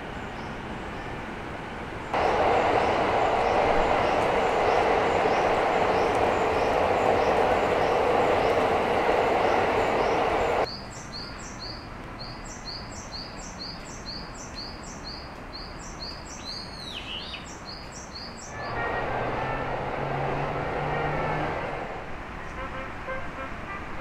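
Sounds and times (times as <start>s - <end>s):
tram running rush: 0.0s - 10.7s, 18.4s - 24.0s
passing car engine: 2.1s - 10.7s, 18.5s - 22.4s.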